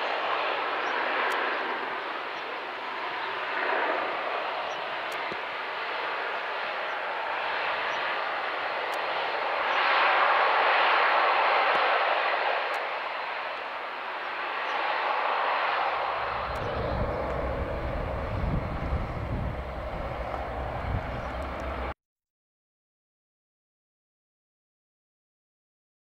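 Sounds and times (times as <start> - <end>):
turboprop engine at takeoff power: 0.0 - 22.0
wind rumble on microphone: 15.9 - 22.0.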